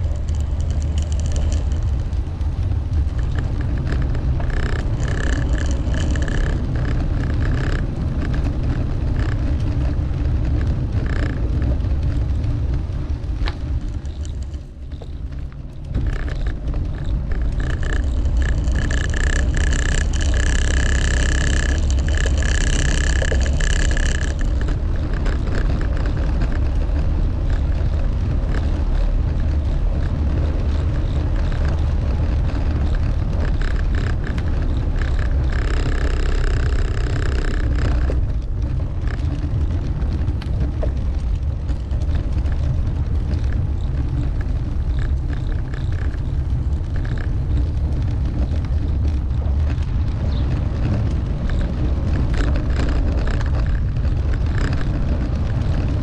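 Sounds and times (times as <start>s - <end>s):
high-pitched whine: 0.0s - 9.8s, 13.4s - 39.2s
road noise: 0.0s - 56.0s
wind rumble on microphone: 0.0s - 56.0s.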